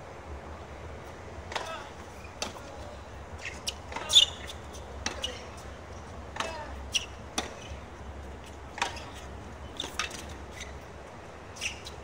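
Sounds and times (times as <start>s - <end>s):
tennis ball hit and bouncing: 1.5s - 2.8s, 3.6s - 5.4s, 6.3s - 7.7s, 8.7s - 10.4s.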